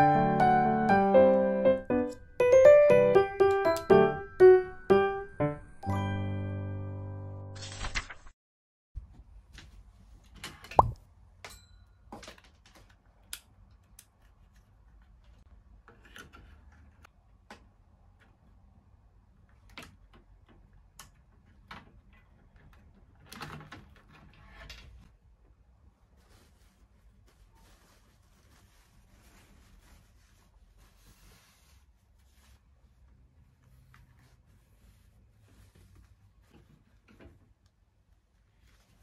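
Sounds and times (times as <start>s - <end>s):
rustling: 25.9s - 39.0s.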